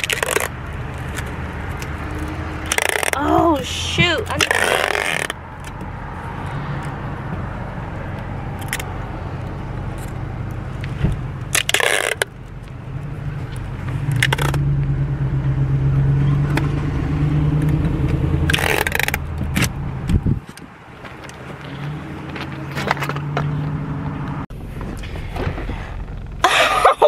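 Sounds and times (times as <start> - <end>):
car engine and road noise: 0.0 - 27.0.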